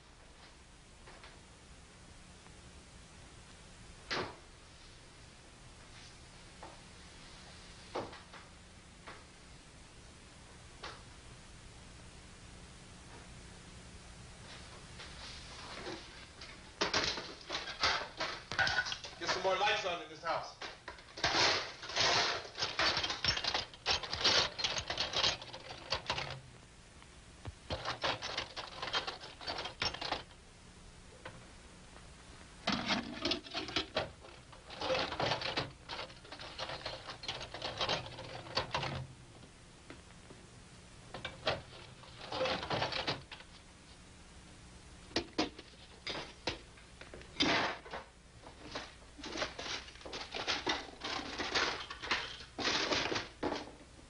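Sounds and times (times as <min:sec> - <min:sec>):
metal tools clinking and clattering: 0:21.1 - 0:26.4, 0:27.7 - 0:30.2, 0:32.8 - 0:39.0, 0:49.2 - 0:53.6.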